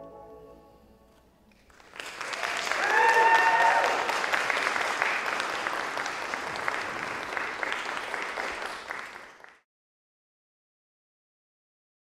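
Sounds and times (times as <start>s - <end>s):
audience applauding: 1.6s - 9.6s.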